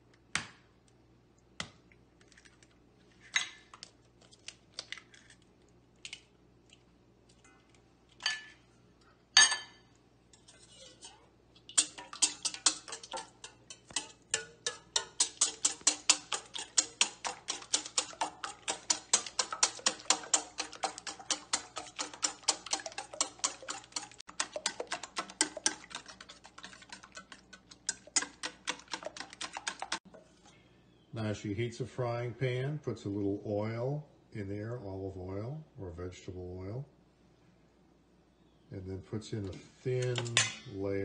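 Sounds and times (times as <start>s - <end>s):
egg shell cracking: 3.7s - 6.8s
wire whisk beating in steel bowl: 11.0s - 30.0s.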